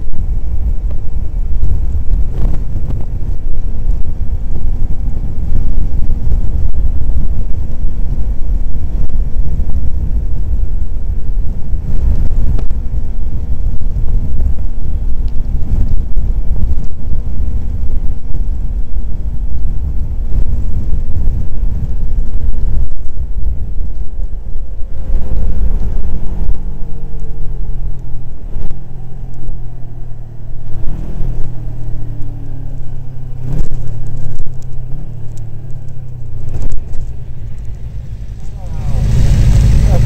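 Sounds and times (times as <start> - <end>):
wind rumbling over microphone: 0.0 - 40.0
motorcycle engine slowing down: 31.2 - 40.0.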